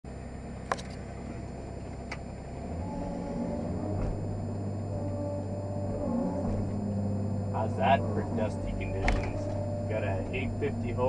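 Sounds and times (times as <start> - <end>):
steady whine: 0.0 - 11.0
excavator engine and hydraulics: 0.1 - 11.0.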